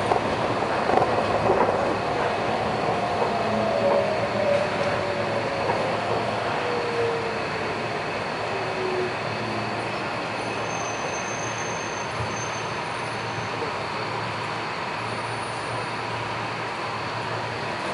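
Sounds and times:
train running noise from inside: 0:00.0 - 0:17.9
faint high squeal: 0:08.5 - 0:13.7.

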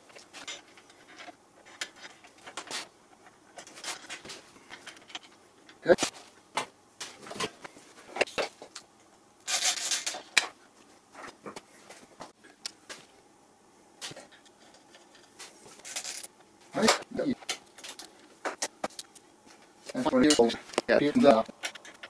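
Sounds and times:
clicks and knocks of parts: 0:00.0 - 0:08.9, 0:09.5 - 0:10.6, 0:14.0 - 0:19.2, 0:19.9 - 0:22.0.

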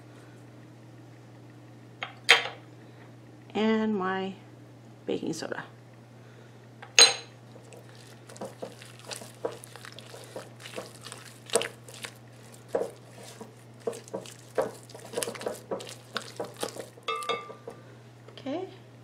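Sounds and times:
spatula scraping dough in glass bowl: 0:08.0 - 0:17.3.

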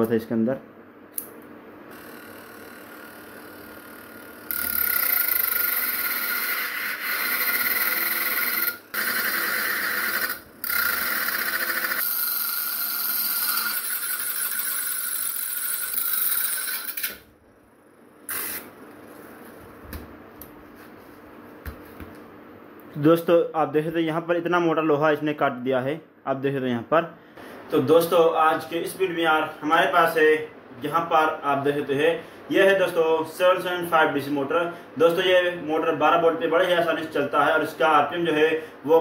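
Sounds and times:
angle grinder cutting metal rod: 0:01.9 - 0:17.2.

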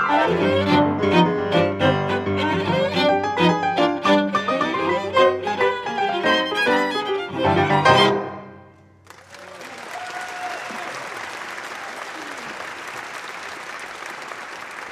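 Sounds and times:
piano trio playing: 0:00.0 - 0:08.8
audience applauding: 0:09.0 - 0:14.9.

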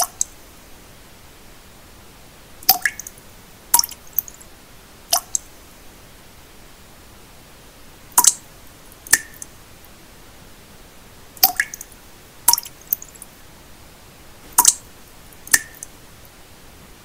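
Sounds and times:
steady hiss: 0:00.0 - 0:17.0
water droplets plinking: 0:02.6 - 0:03.1, 0:03.8 - 0:04.3, 0:08.2 - 0:08.4, 0:09.1 - 0:09.5, 0:11.4 - 0:11.9, 0:12.5 - 0:13.1, 0:14.6 - 0:14.8, 0:15.4 - 0:15.9.

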